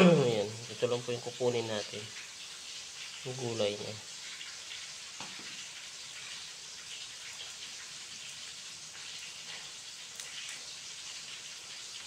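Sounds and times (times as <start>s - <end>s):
steady hiss: 0.0s - 12.0s
faint ticks and crackles: 0.7s - 12.0s.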